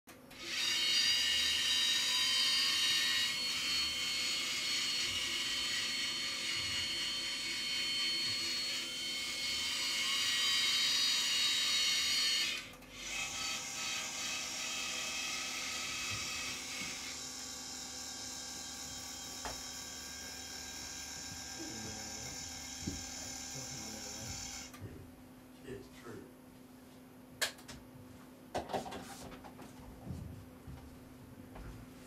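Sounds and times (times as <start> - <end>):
x-ray machine arm whirring: 0.3 - 24.9.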